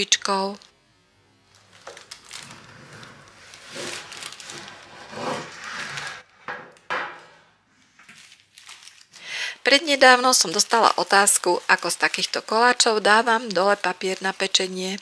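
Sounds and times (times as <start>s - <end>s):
baking paper rustling: 1.6s - 6.3s, 8.0s - 15.0s.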